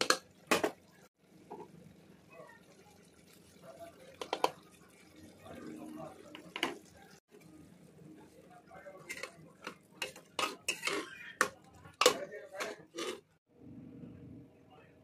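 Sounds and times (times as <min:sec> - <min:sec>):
spoon scraping metal pot: 0:09.0 - 0:13.4.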